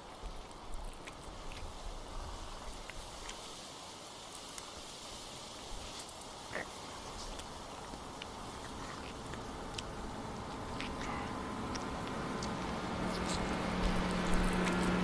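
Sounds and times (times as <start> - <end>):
steady hiss: 0.0 - 15.0
faint clicks and crunches: 5.9 - 15.0.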